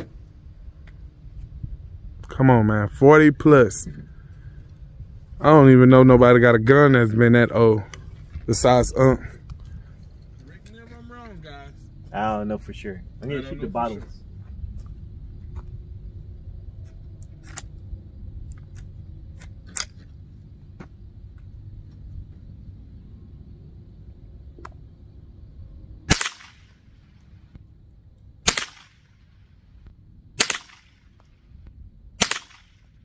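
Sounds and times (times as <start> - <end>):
rifle shots: 26.1 - 26.9, 28.4 - 29.3, 30.4 - 31.2, 32.2 - 33.0.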